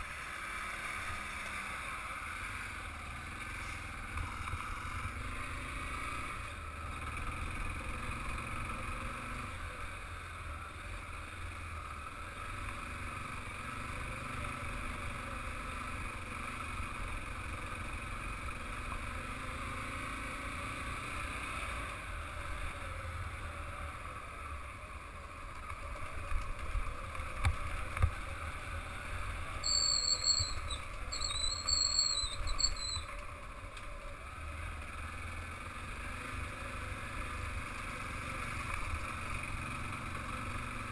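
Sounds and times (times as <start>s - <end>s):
motorcycle engine running: 0.0s - 40.9s
high squeal: 29.6s - 33.2s.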